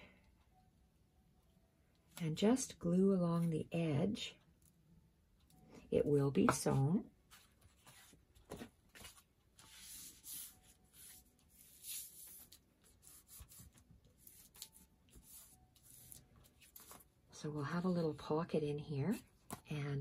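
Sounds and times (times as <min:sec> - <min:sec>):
paper rustling: 0:07.3 - 0:17.1.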